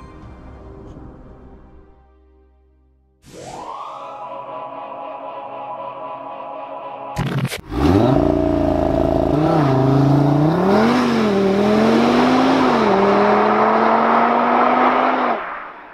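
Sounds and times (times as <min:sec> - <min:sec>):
car engine accelerating: 0:07.6 - 0:15.9.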